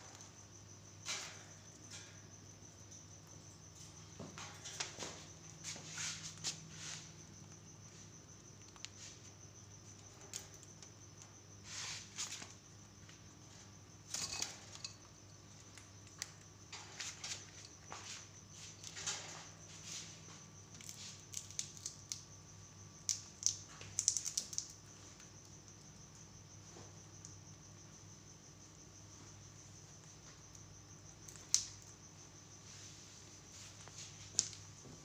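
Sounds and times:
parakeets cracking nuts: 0:20.7 - 0:22.3, 0:23.0 - 0:25.8, 0:31.2 - 0:31.9.

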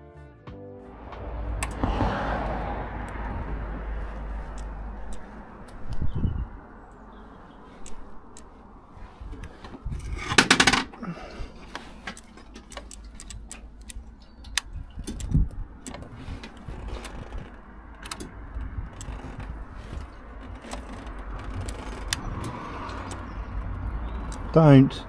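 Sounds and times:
low rumble: 0:00.9 - 0:10.2
handling noises: 0:06.8 - 0:24.6.

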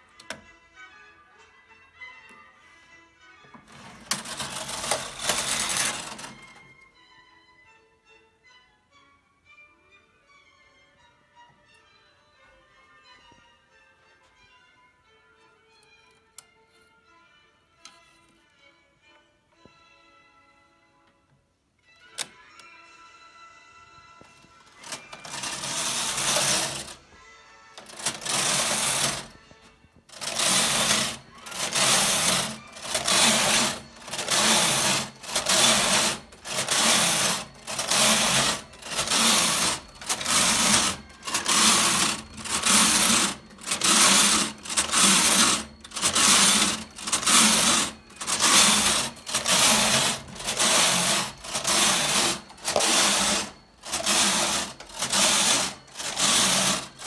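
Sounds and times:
knitting machine carriage rasping: 0:03.6 - 0:06.7, 0:24.6 - 0:27.1, 0:27.8 - 0:57.0.

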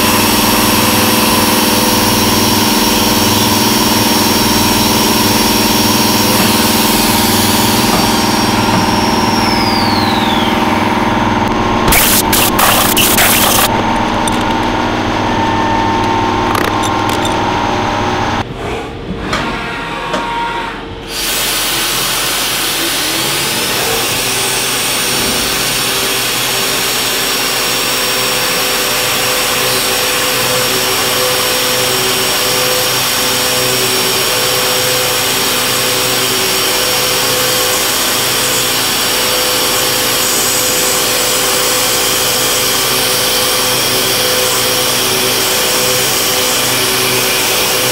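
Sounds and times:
end mill cutting metal: 0:00.0 - 0:18.4, 0:21.1 - 0:47.9
milling machine humming: 0:00.0 - 0:18.4.

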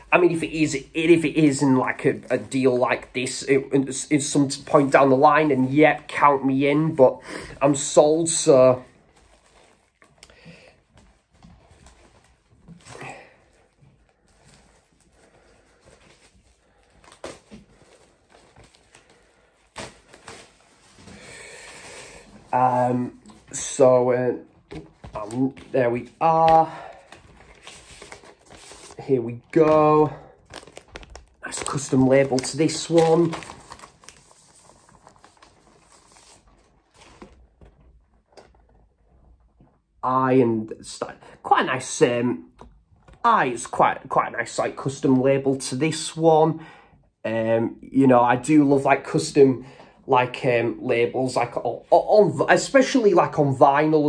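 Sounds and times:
packaging rustling: 0:04.3 - 0:23.8, 0:24.5 - 0:39.3
paper sleeve rustling: 0:24.6 - 0:37.7.

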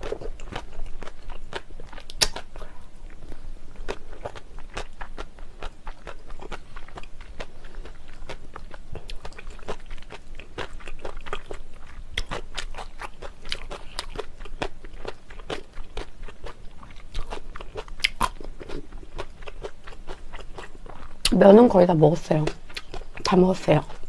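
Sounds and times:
wet chewing: 0:00.0 - 0:21.4, 0:22.4 - 0:24.0.

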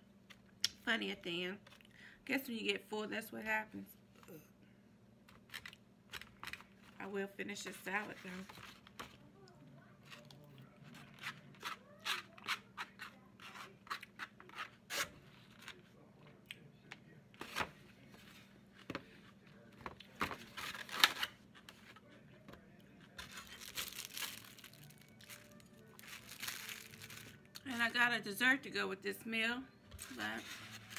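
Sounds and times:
plastic crinkling: 0:23.2 - 0:27.5.

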